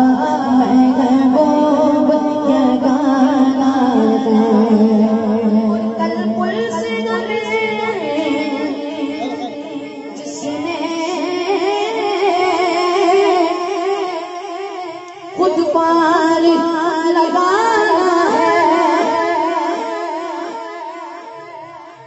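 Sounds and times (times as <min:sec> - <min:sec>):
boy singing into a microphone: 0:00.0 - 0:22.0.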